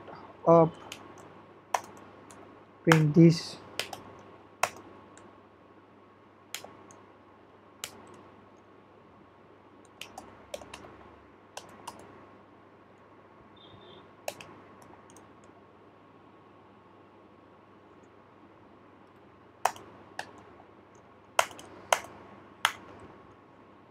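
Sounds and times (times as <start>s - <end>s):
computer keyboard typing: 0.8s - 4.9s, 9.9s - 11.0s, 11.6s - 12.1s, 14.3s - 15.5s, 19.6s - 20.4s, 21.4s - 22.8s.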